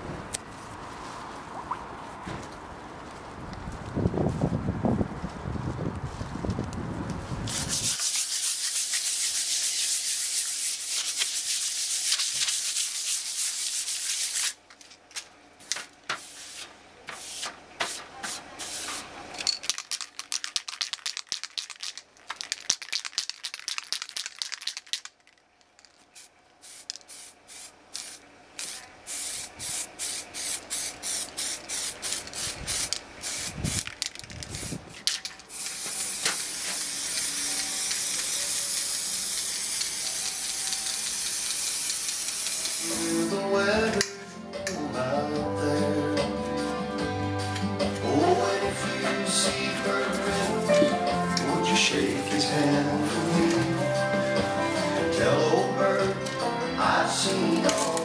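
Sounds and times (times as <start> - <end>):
spray paint hissing: 7.5 - 14.6, 15.6 - 19.0, 19.7 - 25.2, 25.8 - 43.4.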